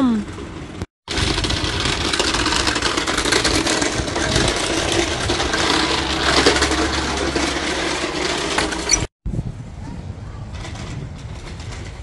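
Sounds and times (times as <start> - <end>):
toy wheels rattling on tarmac: 0.3 - 9.1, 10.3 - 12.0.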